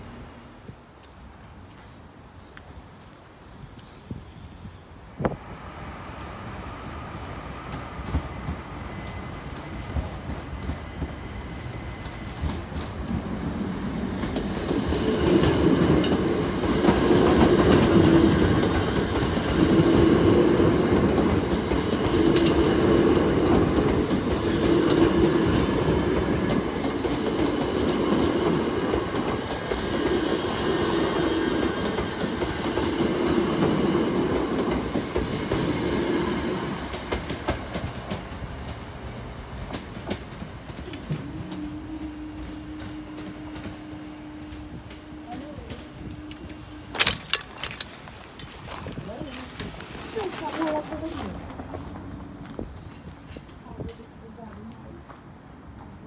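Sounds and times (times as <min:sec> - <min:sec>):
train wheels rumbling and clicking: 0:07.3 - 0:56.0.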